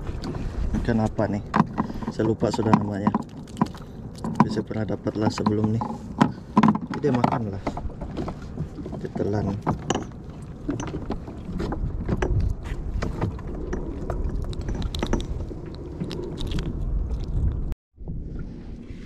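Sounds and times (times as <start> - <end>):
wind and water rumble: 0.0 - 19.0.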